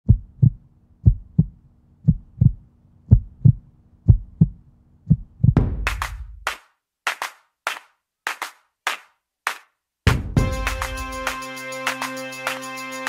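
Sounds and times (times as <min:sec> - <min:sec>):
heartbeat thumps: 0:00.0 - 0:06.5, 0:10.1 - 0:11.0
music: 0:10.1 - 0:13.0.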